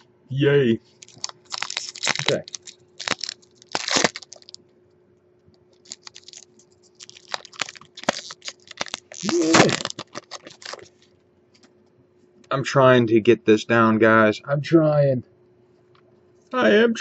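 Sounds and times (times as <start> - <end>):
cards rustling: 0.9 - 4.6, 5.8 - 11.1.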